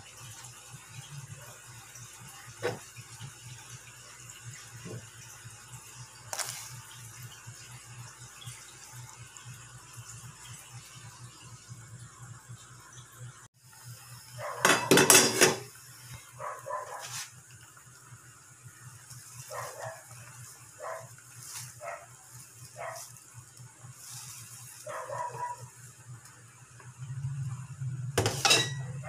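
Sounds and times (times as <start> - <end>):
dog barking: 14.4 - 14.9, 16.4 - 17.2, 19.5 - 20.1, 20.8 - 21.1, 21.8 - 22.2, 22.8 - 23.1, 24.8 - 25.7.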